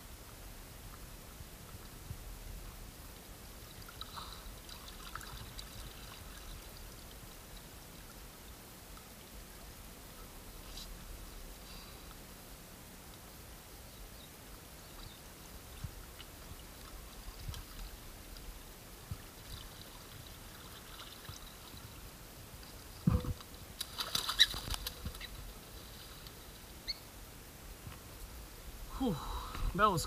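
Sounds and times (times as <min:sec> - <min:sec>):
water trickling among rocks: 0:03.4 - 0:11.3, 0:14.4 - 0:26.9.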